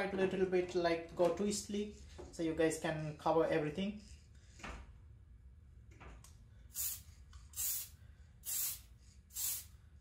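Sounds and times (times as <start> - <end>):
spray paint can hissing: 6.7 - 9.8.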